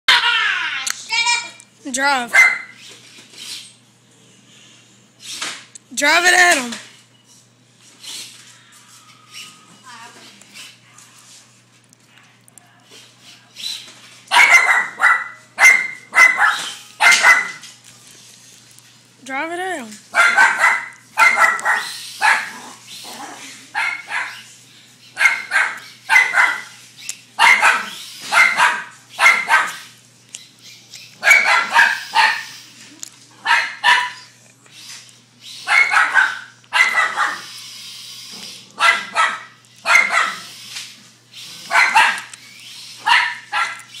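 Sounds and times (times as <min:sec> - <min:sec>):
dog barking: 0:02.3 - 0:02.7, 0:14.3 - 0:17.6, 0:20.1 - 0:22.6, 0:23.7 - 0:24.5, 0:25.2 - 0:26.7, 0:27.4 - 0:29.9, 0:31.2 - 0:32.6, 0:33.4 - 0:34.3, 0:35.6 - 0:37.5, 0:38.8 - 0:40.5, 0:41.6 - 0:42.3, 0:43.0 - 0:43.9.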